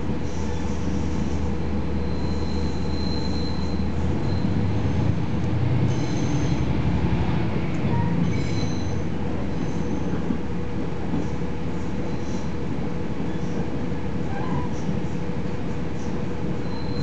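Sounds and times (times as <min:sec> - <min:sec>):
train engine rumble: 0:00.0 - 0:17.0
high metal wheel squeals: 0:02.0 - 0:04.7, 0:05.9 - 0:06.6, 0:07.9 - 0:09.0, 0:16.6 - 0:17.0.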